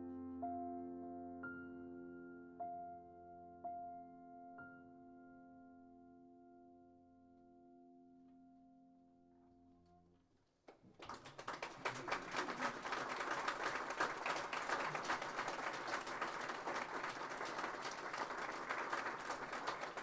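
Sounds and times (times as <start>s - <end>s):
audience applauding: 10.7s - 20.0s.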